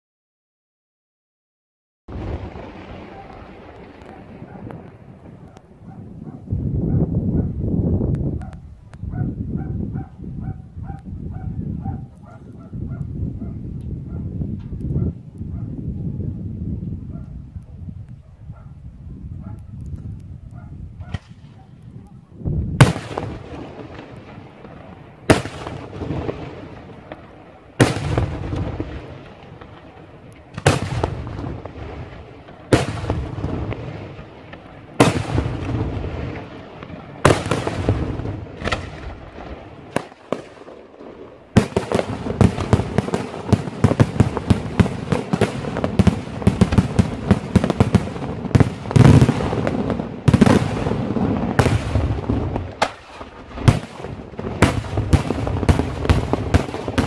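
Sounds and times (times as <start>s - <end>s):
rapid small firework bangs and crackles: 2.1s - 6.4s, 20.5s - 22.2s, 22.8s - 57.0s.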